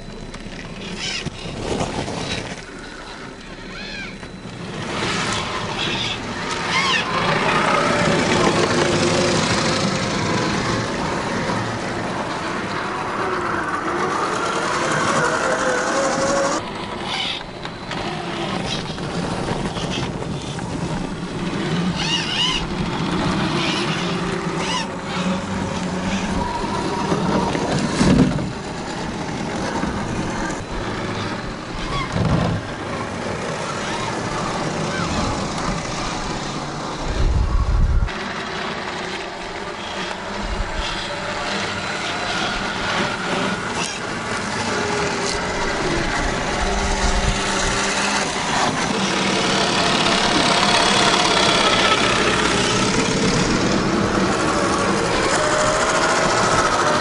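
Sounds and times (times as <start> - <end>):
electric motors whining: 0.0 - 57.0.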